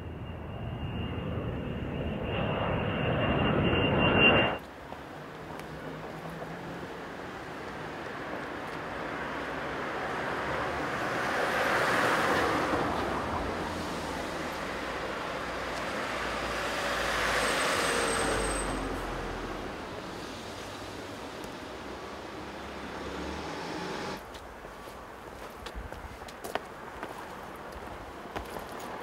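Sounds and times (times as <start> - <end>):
cars passing: 4.9 - 24.5.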